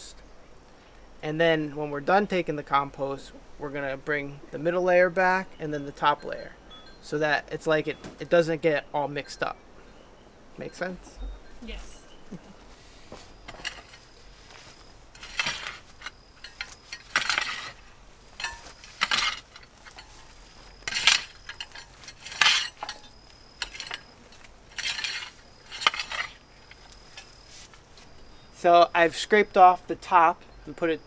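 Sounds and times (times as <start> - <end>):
rake scraping wood-chip mulch: 12.7 - 28.1.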